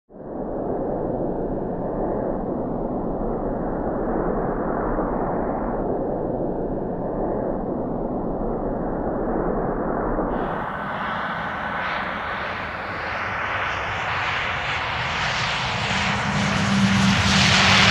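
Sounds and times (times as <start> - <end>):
turboprop engine roar: 10.3 - 17.9.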